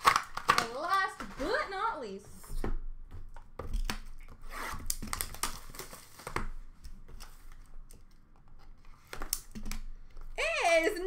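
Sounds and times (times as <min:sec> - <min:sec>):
cardboard packaging tearing: 0:00.0 - 0:01.7, 0:03.8 - 0:06.4.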